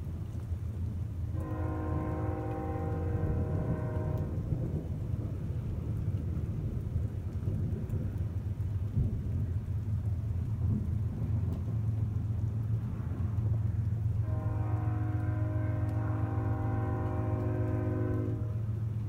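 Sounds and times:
rain: 0.0 - 19.0
thunder rumbling: 0.0 - 19.0.

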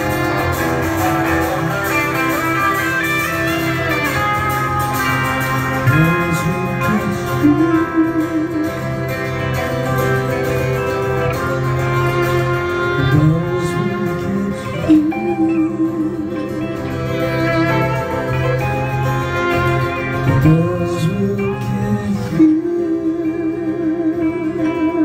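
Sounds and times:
bowed violin: 0.0 - 25.0
electric guitar: 0.0 - 25.0
strummed acoustic guitar: 0.0 - 25.0.

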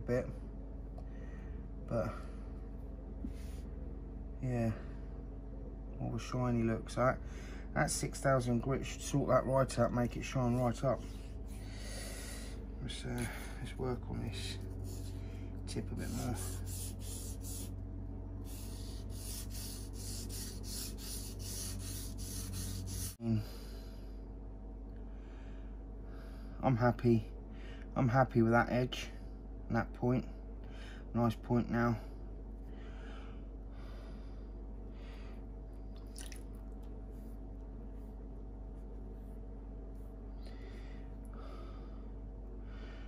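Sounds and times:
steady low hum: 0.0 - 43.0
knife rasping on wet whetstone: 18.5 - 23.2.

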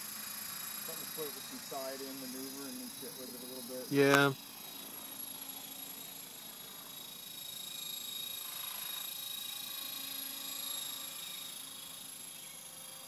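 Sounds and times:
electric motor whine: 0.0 - 13.0
helicopter rotors humming: 0.0 - 13.0.

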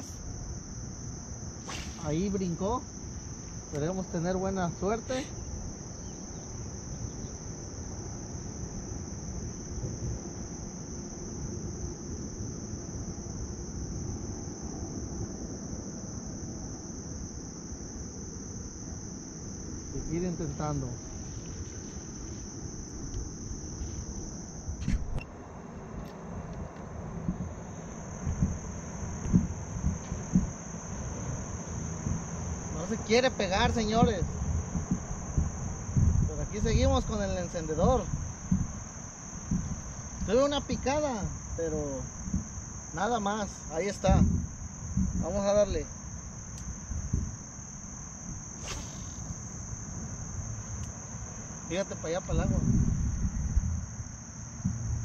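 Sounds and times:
high-pitched insect chorus: 0.0 - 55.0
dull low knocks: 28.2 - 30.6, 34.0 - 36.2
sharp click: 48.6 - 49.4.

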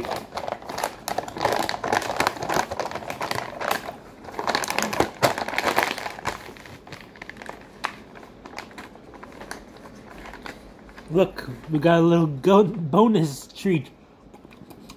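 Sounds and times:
paper bag crumpling: 0.0 - 11.9.

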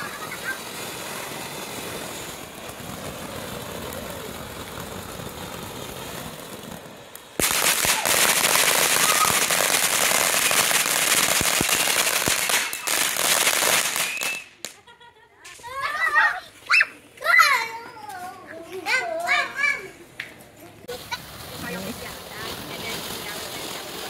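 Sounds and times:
fireworks hissing and crackling: 0.0 - 24.0.

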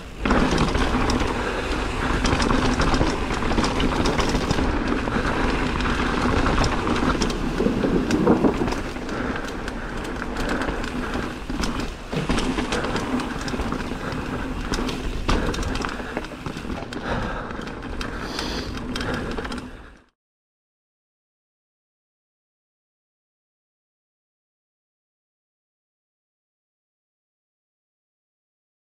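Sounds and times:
bike rattling over bumps: 0.0 - 20.1
bike tyres rolling on trail: 0.0 - 20.1.

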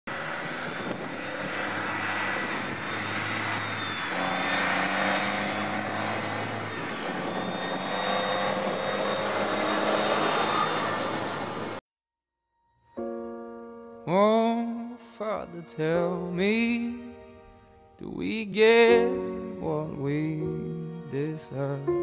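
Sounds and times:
tractor diesel engine running: 0.1 - 11.8.

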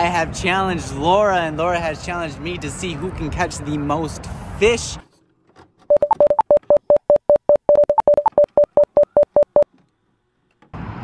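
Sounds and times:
rapid electronic beeps: 5.9 - 9.6.

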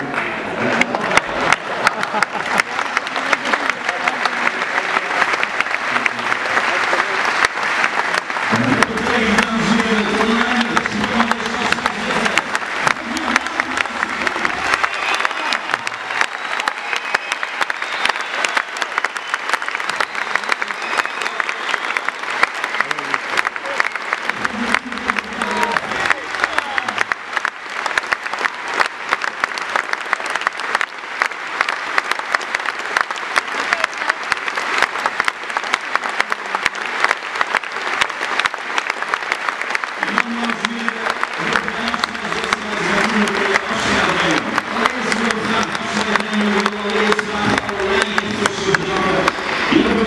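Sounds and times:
crowd applauding: 0.0 - 50.0.

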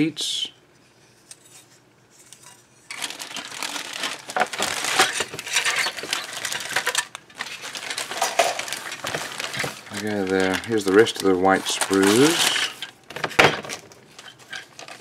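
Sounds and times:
plastic bag crinkling: 2.9 - 15.0.

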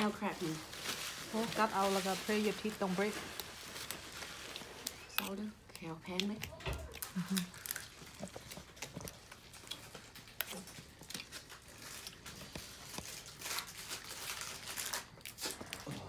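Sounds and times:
crab shells cracking and crunching: 3.4 - 16.0.

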